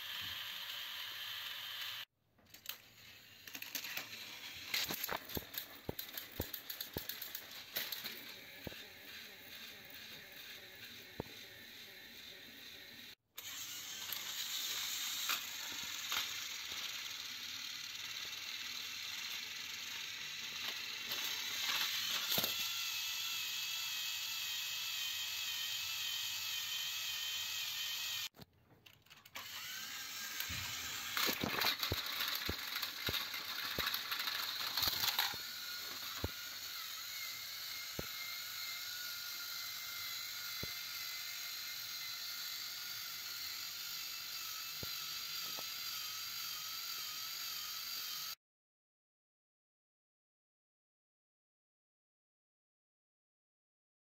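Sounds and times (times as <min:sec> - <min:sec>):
toy train motors whirring: 0:00.0 - 0:48.4
gear clicking: 0:03.4 - 0:48.3
plastic clicks and clatter: 0:04.7 - 0:08.8, 0:31.1 - 0:35.4.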